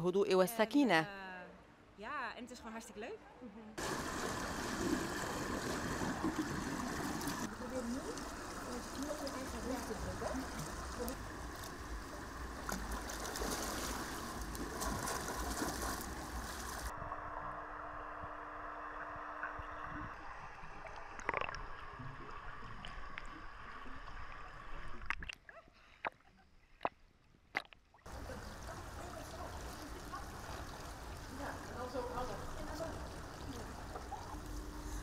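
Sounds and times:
water splashing in a pool: 3.8 - 16.9, 19.4 - 25.5, 26.8 - 35.0.

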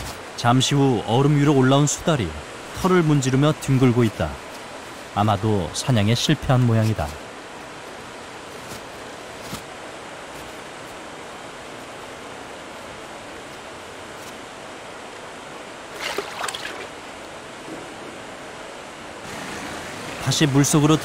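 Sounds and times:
stream water flowing: 0.0 - 21.0
otter splashing into water: 15.9 - 17.0.

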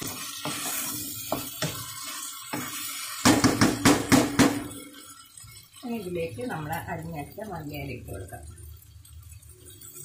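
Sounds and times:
wooden spatula scraping a pan: 0.0 - 6.1.

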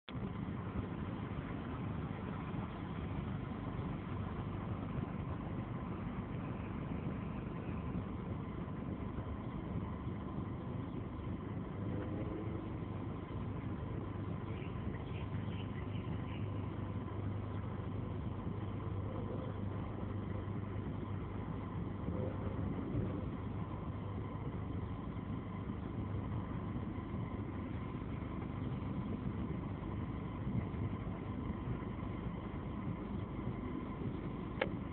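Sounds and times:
low mechanical hum: 0.0 - 34.9
vehicle engine and road rumble: 0.0 - 34.9.

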